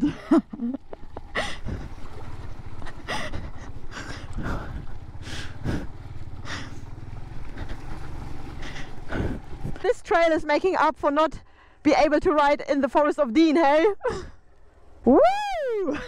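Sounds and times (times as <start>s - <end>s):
motorcycle engine running: 0.8s - 11.1s
tyres splashing in mud: 1.3s - 10.0s.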